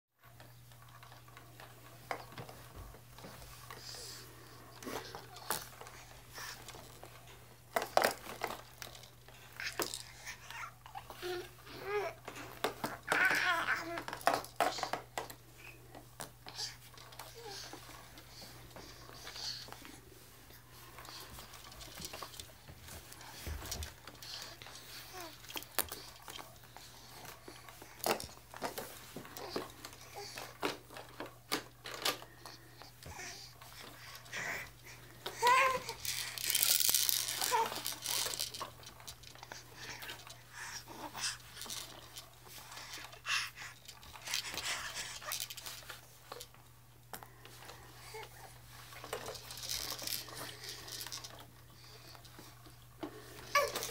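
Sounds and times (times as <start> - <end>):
faint steady hum: 0.2 - 53.9
soft breathy rustle: 1.8 - 12.6
plastic toys clicking: 11.2 - 15.4, 35.2 - 46.5, 48.9 - 51.5
plastic toys tapping and clicking: 11.2 - 17.8, 35.2 - 40.3.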